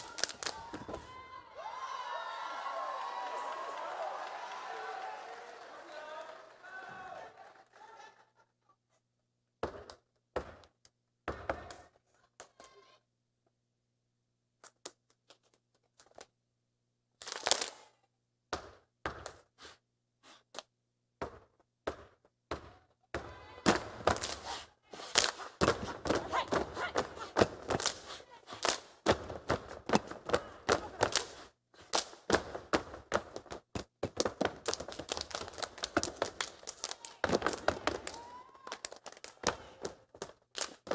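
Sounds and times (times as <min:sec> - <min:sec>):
hand claps: 0:34.2 - 0:40.9.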